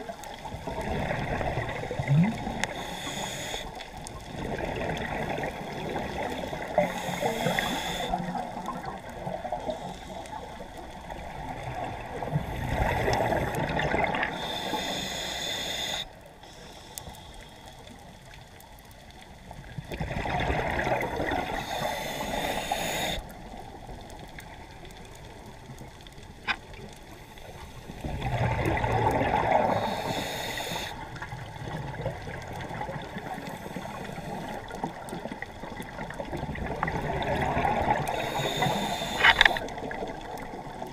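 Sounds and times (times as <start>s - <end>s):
exhaled bubbles underwater: 0.0s - 9.9s, 10.5s - 14.8s, 19.5s - 27.0s, 27.9s - 40.9s
diver breathing through regulator: 2.6s - 3.9s, 6.4s - 8.5s, 12.3s - 17.8s, 21.0s - 23.4s, 29.5s - 31.1s, 37.7s - 39.8s.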